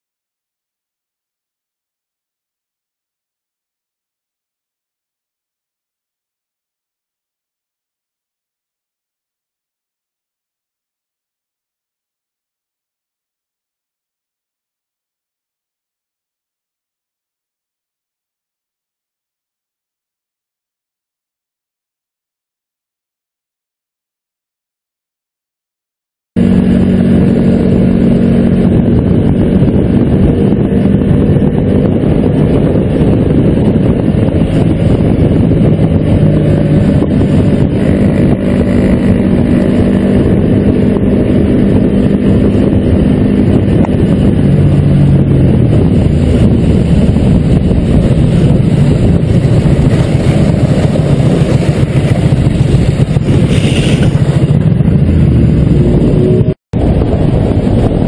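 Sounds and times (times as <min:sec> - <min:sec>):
motorcycle engines droning: 0:26.4 - 0:58.0.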